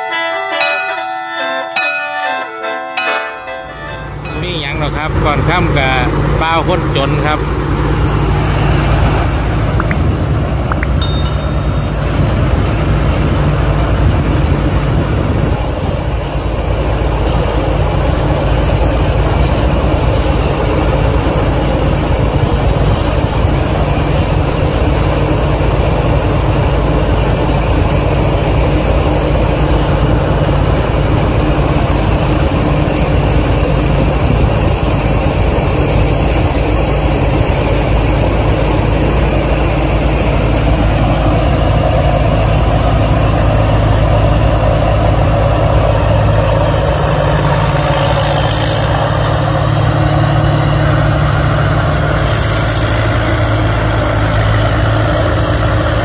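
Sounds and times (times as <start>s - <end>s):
harvester diesel engine running: 3.0s - 56.0s
thin high whine: 8.2s - 25.5s.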